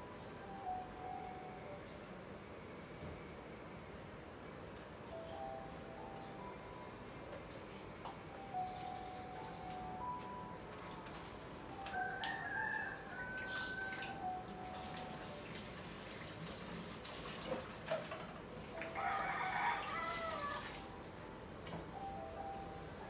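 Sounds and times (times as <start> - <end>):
rooster crowing: 11.8 - 14.4, 18.8 - 20.9.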